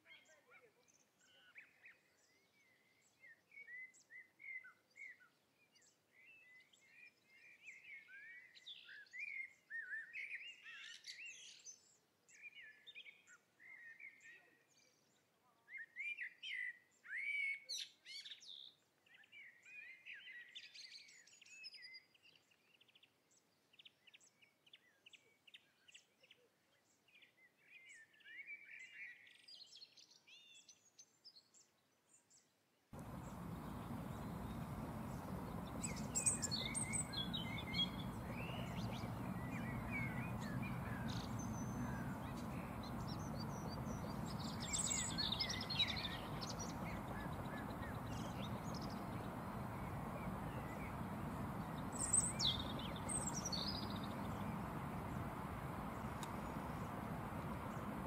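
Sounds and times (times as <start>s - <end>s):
songbirds chirping: 27.0s - 58.0s
faint outdoor hiss: 33.0s - 58.0s.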